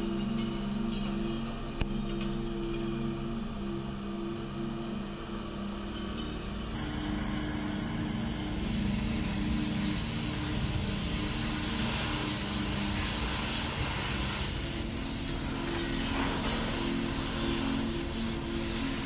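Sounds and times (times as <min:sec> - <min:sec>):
cutting torch hissing: 0:06.8 - 0:19.0.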